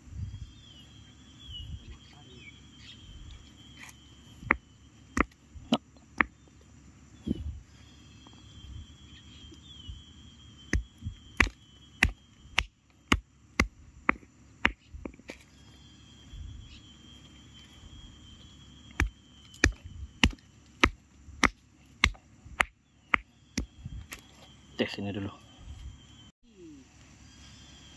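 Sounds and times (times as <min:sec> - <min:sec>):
insect trilling: 0:00.0 - 0:27.9
stone pounding on rock: 0:05.2 - 0:06.3, 0:10.7 - 0:15.3, 0:19.0 - 0:23.7.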